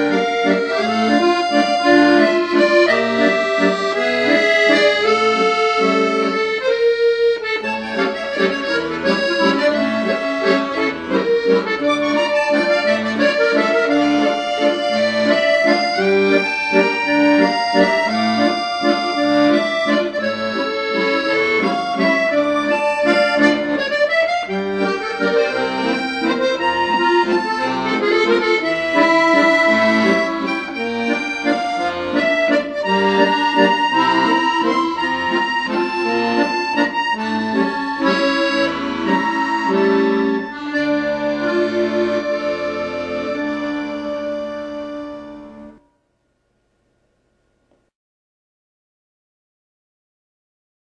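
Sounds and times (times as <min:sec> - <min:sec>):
accordion music: 0:00.0 - 0:45.9.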